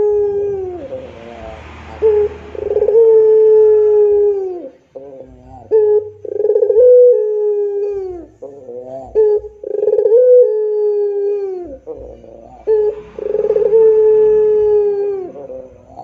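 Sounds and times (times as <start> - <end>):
dove cooing: 0.0 - 16.0.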